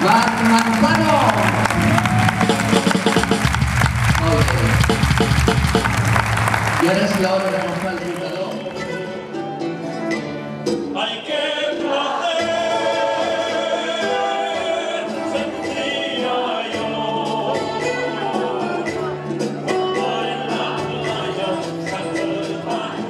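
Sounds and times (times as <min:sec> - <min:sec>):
instrumental accompaniment: 0:00.0 - 0:23.0
voices singing together: 0:10.9 - 0:23.0.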